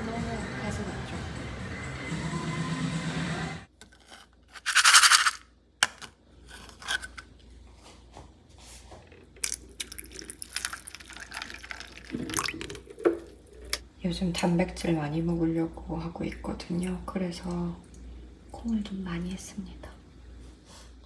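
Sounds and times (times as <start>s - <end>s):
beans settling clicks: 9.1s - 12.1s.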